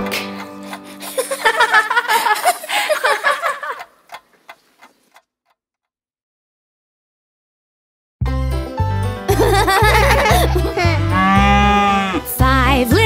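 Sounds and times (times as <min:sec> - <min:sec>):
pendulum clock ticking: 0:00.0 - 0:05.2
cartoon characters giggling: 0:00.8 - 0:04.0, 0:09.3 - 0:11.2.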